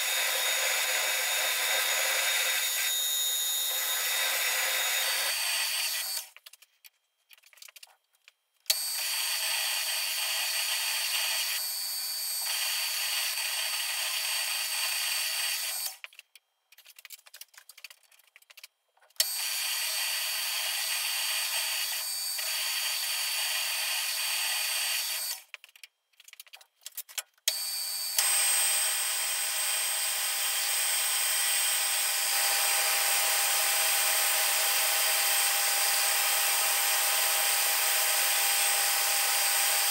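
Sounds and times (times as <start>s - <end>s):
metal lathe cutting: 0.0s - 6.2s.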